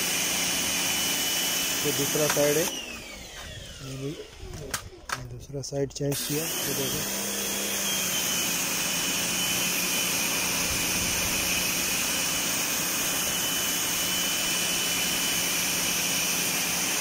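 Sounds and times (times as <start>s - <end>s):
pressure washer spraying water: 0.0s - 2.7s, 6.1s - 17.0s.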